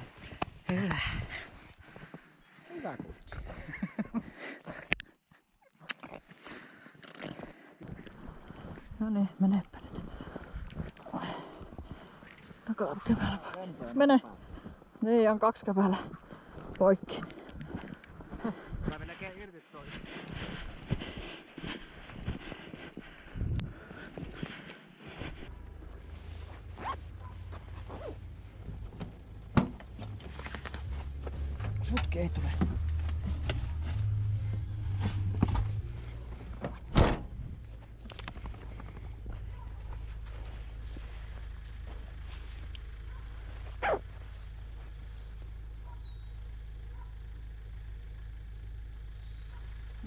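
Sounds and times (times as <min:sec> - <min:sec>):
footsteps crunching on snow: 0:17.7 - 0:28.8, 0:30.2 - 0:36.6, 0:38.3 - 0:45.2
low rumble: 0:20.0 - 0:45.2
low steady hum: 0:23.1 - 0:45.2
dog whining: 0:43.8 - 0:44.6, 0:45.2 - 0:47.0, 0:49.0 - 0:50.0.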